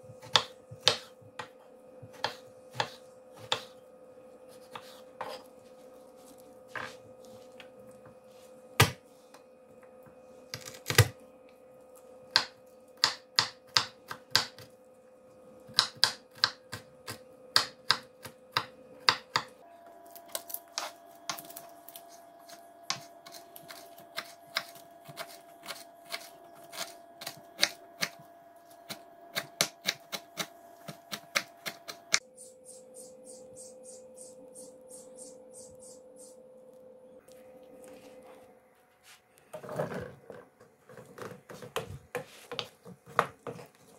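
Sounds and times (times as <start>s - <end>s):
faint steady hum: 0.0s - 43.9s
knife chopping on wooden board: 0.2s - 3.8s, 12.3s - 14.7s.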